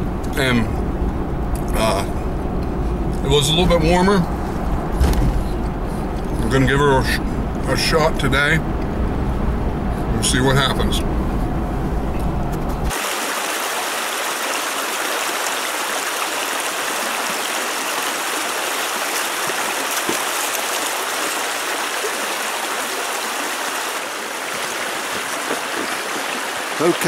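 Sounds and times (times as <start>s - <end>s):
vehicle cabin rumble: 0.0s - 12.9s
stream rushing over rocks: 12.9s - 27.0s.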